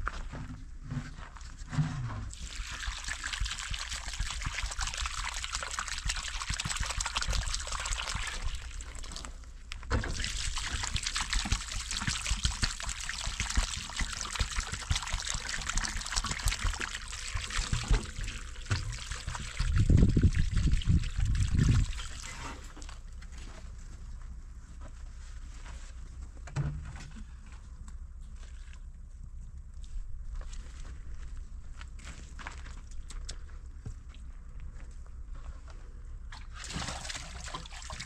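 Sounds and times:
water trickling and pouring: 2.3s - 23.0s, 36.5s - 38.0s.

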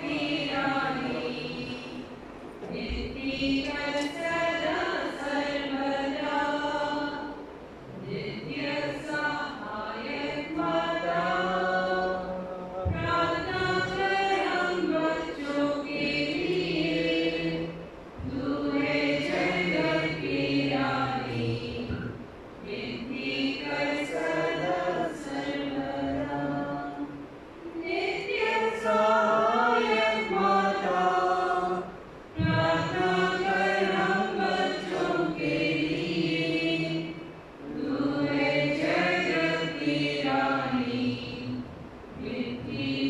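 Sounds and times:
voices singing a hymn: 0.0s - 43.0s.

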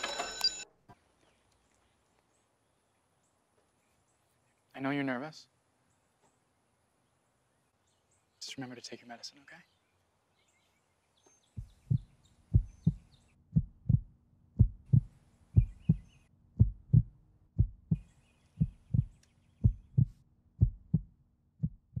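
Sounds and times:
heartbeat thumps: 11.6s - 22.0s.

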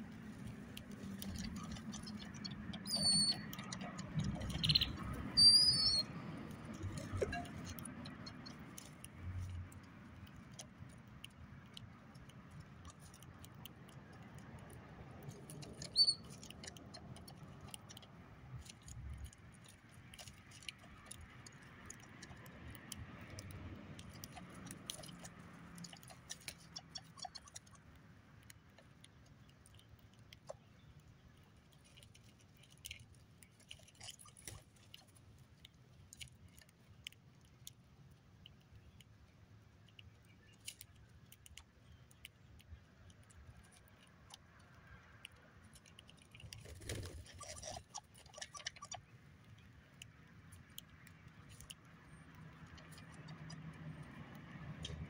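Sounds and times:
beaks tapping and cracking seeds: 0.0s - 55.0s
bird chirp: 1.3s - 6.2s, 15.6s - 17.0s.

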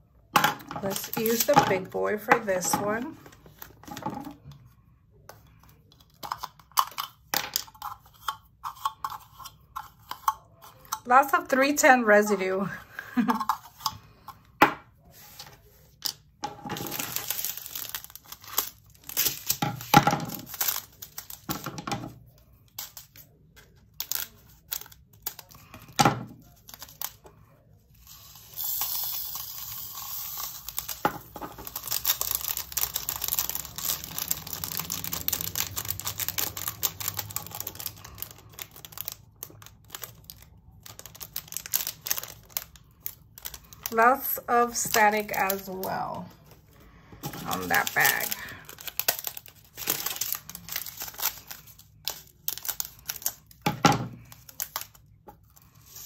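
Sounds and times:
plastic bags crinkling: 0.8s - 4.6s, 15.1s - 27.3s, 30.4s - 56.0s.

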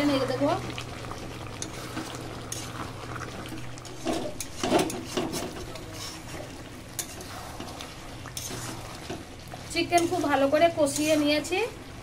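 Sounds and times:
spatula scraping metal pan: 3.8s - 6.4s, 7.0s - 11.6s.

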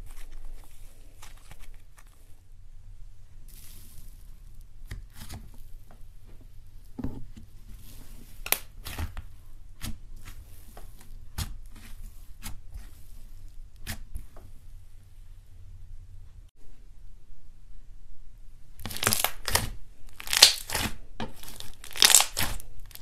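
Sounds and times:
slime crackling and popping: 8.4s - 9.2s, 18.8s - 23.0s.

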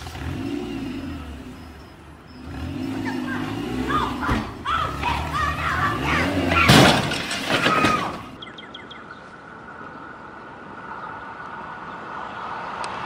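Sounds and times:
wooden shed crashing onto pavement: 6.5s - 8.4s.

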